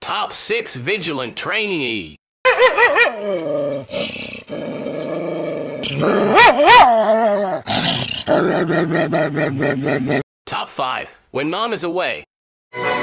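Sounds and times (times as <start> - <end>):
dog howling: 5.7 - 7.6.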